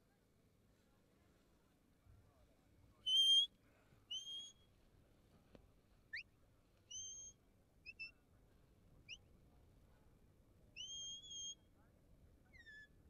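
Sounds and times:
shepherd's whistle notes: 3.0 - 3.5, 4.1 - 4.7, 6.9 - 8.2, 10.8 - 11.6.

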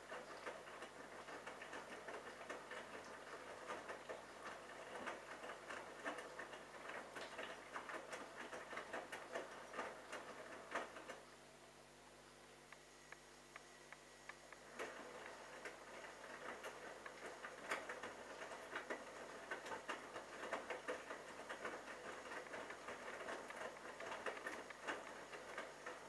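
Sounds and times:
wet laundry tumbling in drum: 14.7 - 26.0.

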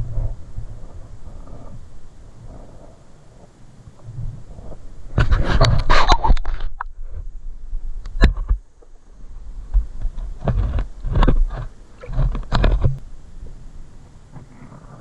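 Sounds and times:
muffled underwater rumbling: 0.0 - 15.0
sharp clicks and knocks: 8.0 - 8.9, 9.7 - 13.0.

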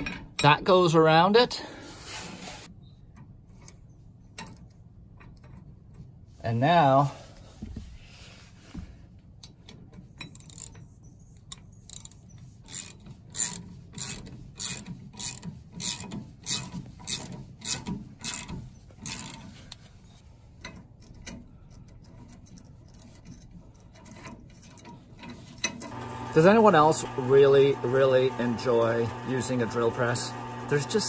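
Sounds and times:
ratchet wrench clicking: 10.2 - 19.5.

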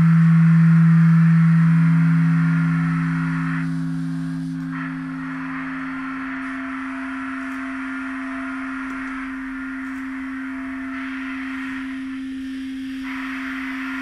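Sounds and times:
steady electronic tone: 0.0 - 14.0
hiss: 3.0 - 14.0.

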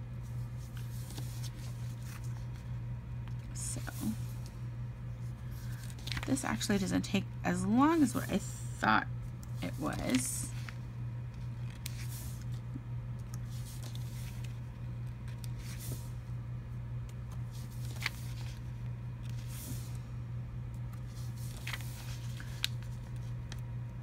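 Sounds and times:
steady low hum: 0.0 - 24.0
paper rustling: 0.5 - 2.7, 5.5 - 6.8, 9.7 - 16.1, 17.3 - 20.0, 20.9 - 23.6.

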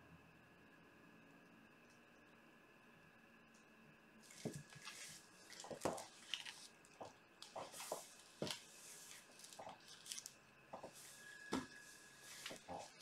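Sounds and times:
soft plastic rustling: 4.2 - 13.0.

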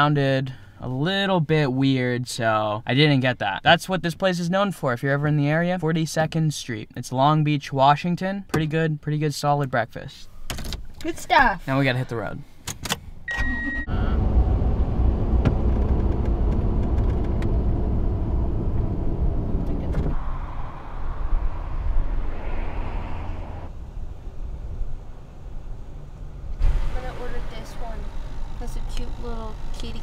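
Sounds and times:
road and engine rumble in cab: 12.6 - 30.0.

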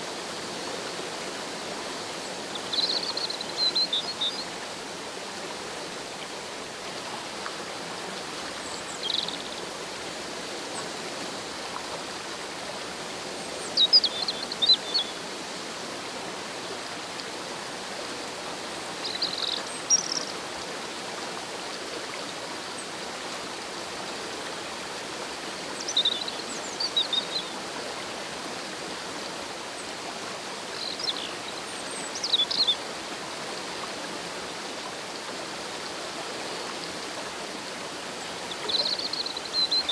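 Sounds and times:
rushing stream and waterfall: 0.0 - 39.9
bird chirping: 9.0 - 9.5.

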